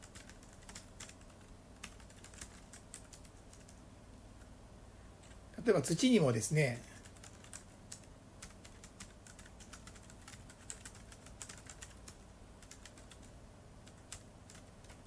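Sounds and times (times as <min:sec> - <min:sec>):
keyboard typing: 0:00.0 - 0:03.8, 0:07.0 - 0:15.0.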